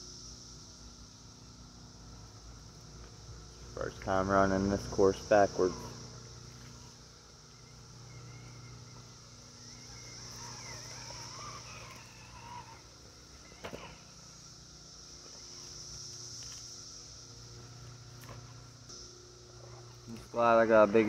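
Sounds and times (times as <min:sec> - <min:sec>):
high-pitched insect chorus: 0:00.0 - 0:21.0
bird warbling: 0:05.6 - 0:15.8.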